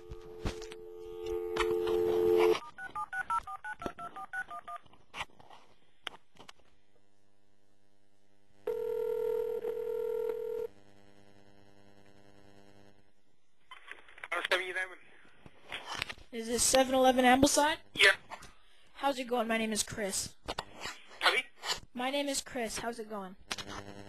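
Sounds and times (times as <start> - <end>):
telephone ringback tone: 0.0 - 4.7, 8.7 - 10.7
telephone dial tone: 0.0 - 4.8, 8.7 - 10.7
keypad dialing beeps: 2.4 - 4.8.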